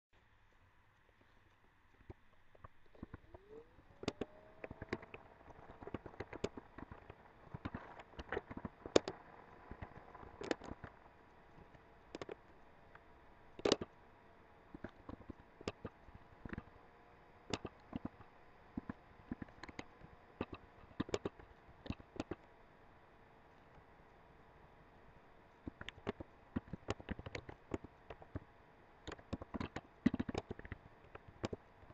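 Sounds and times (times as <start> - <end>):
faint hum: 0.2 - 31.9
keyboard key clicks: 17.5 - 18.2.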